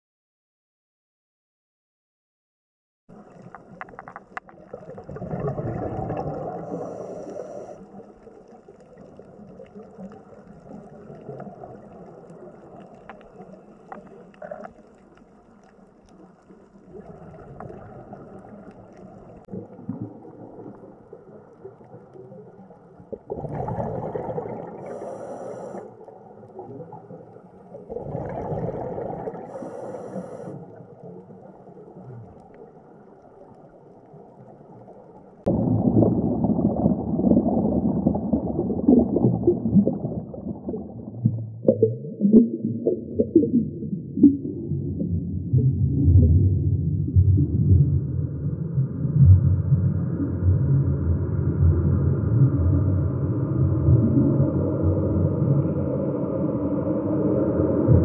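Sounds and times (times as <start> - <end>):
exhaled bubbles rushing: 3.1 - 14.8, 16.5 - 25.1, 26.0 - 29.8, 34.3 - 58.0
underwater watery hiss: 6.1 - 8.5, 24.0 - 26.4, 27.8 - 31.2.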